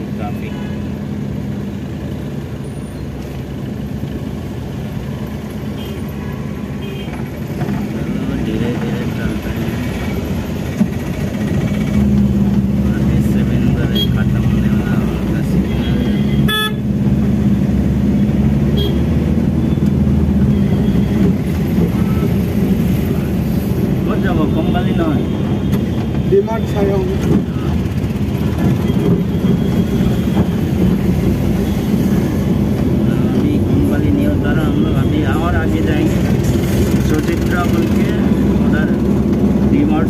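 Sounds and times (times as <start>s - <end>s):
road noise: 0.0s - 40.0s
vehicle engine running at low speed: 27.0s - 40.0s.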